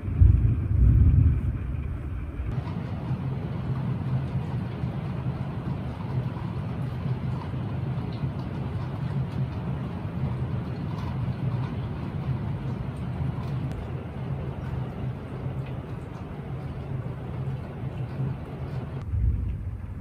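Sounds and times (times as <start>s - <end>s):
heavy rain rushing: 0.0s - 20.0s.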